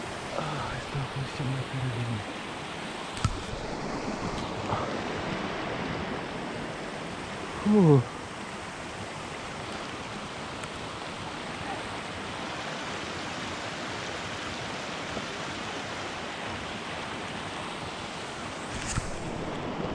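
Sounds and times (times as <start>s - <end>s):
stream rushing over stones: 0.0s - 19.9s.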